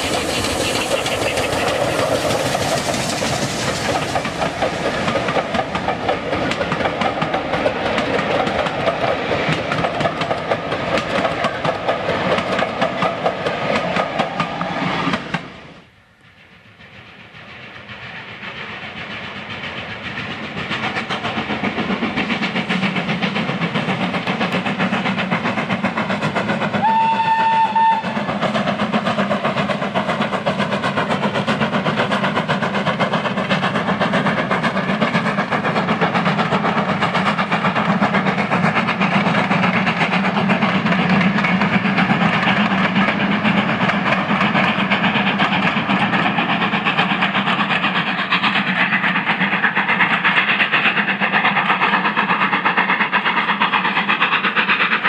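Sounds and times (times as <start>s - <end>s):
steam train passing: 0.0s - 55.0s
steam locomotive whistle blast: 26.8s - 28.3s.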